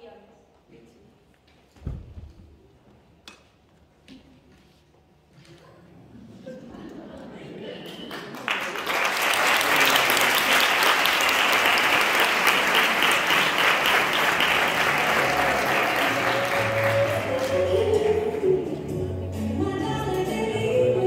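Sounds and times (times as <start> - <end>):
audience applauding: 8.0 - 18.5
music: 14.0 - 21.0.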